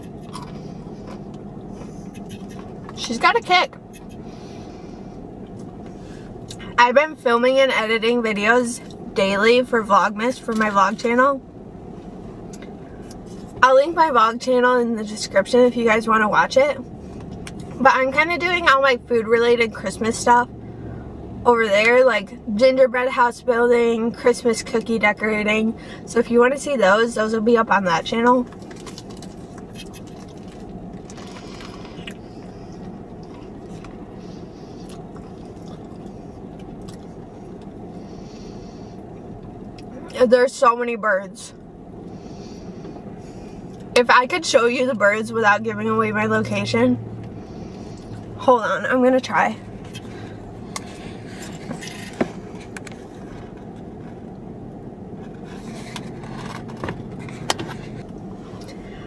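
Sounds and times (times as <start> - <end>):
chewing and mouth sounds: 0.0 - 3.0, 28.5 - 34.0, 34.8 - 37.7
car interior hum: 0.0 - 59.0.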